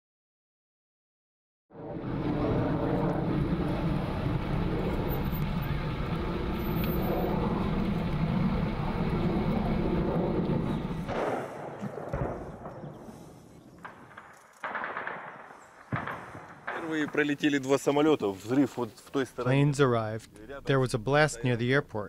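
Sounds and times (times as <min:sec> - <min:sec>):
fighter jet overhead: 0:01.7 - 0:18.6.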